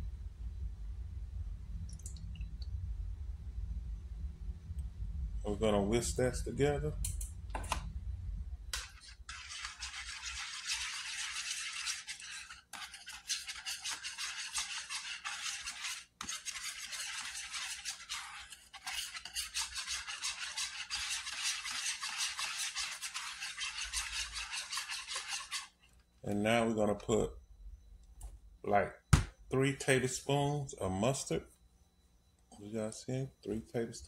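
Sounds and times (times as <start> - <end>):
whisk beating eggs in plastic bowl: 8.8 - 25.8.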